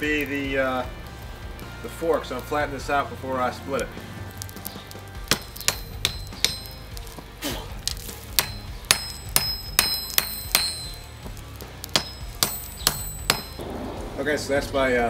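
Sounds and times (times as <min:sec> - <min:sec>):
hammer striking hot steel on anvil: 0:03.7 - 0:14.3.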